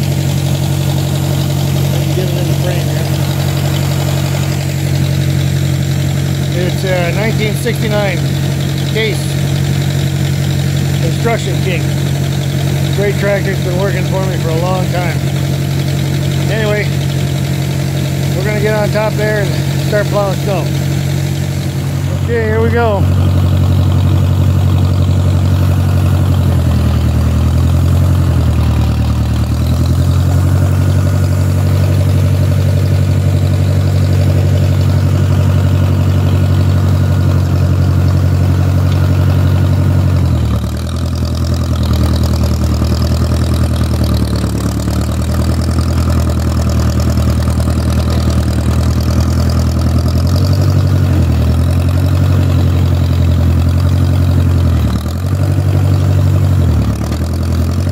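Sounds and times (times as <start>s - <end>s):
tractor engine running: 0.0s - 57.9s.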